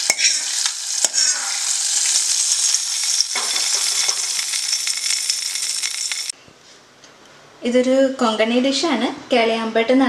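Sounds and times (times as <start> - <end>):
seeds sizzling in hot oil: 0.0 - 6.4.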